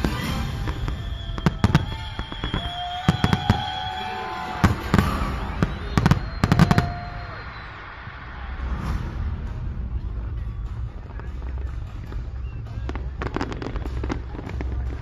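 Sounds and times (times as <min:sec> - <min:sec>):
low rumble: 0:08.1 - 0:15.0.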